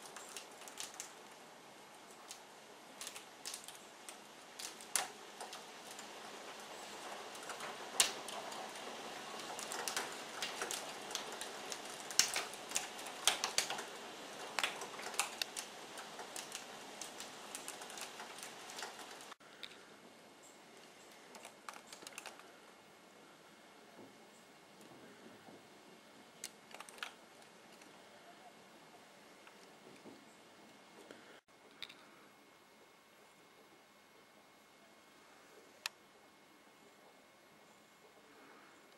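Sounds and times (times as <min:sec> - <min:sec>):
hail pelting a window: 0:00.0 - 0:19.4, 0:21.1 - 0:22.7, 0:26.4 - 0:28.0.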